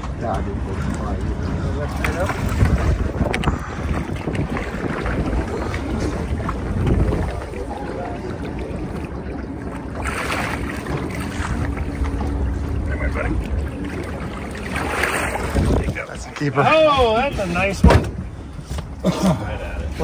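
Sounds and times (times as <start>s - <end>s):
wind rumbling on microphone: 0.0s - 16.3s
water sloshing against hull: 0.0s - 20.0s
fish splashing: 1.9s - 15.9s.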